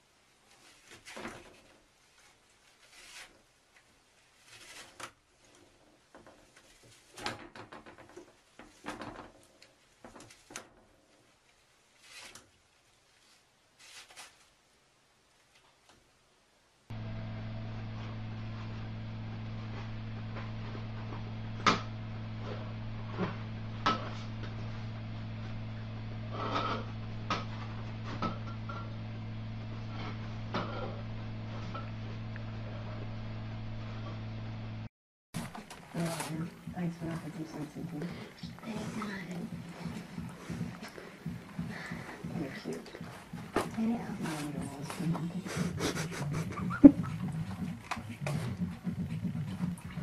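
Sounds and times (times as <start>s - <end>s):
small knocks and scrapes: 0.5s - 10.9s, 11.9s - 12.6s, 13.2s - 14.5s
paper rustling: 12.0s - 14.6s
steady low hum: 16.9s - 50.0s
toilet paper roll spinning and rattling: 26.2s - 32.4s, 35.4s - 50.0s.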